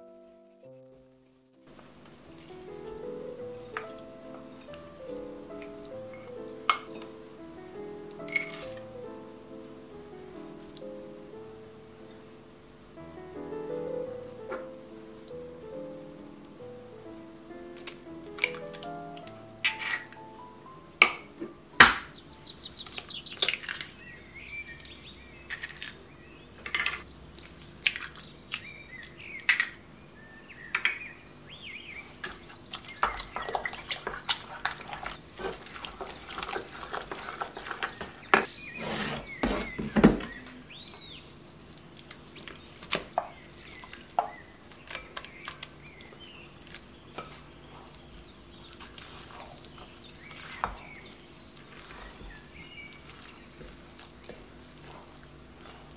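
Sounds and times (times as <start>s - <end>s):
eggs cracked on a saucepan: 17.8s - 20.2s, 21.0s - 22.1s, 22.8s - 24.0s, 26.6s - 29.8s, 32.2s - 38.5s, 42.4s - 47.4s
wooden spoon scraping a pan: 33.0s - 40.4s, 48.8s - 55.9s.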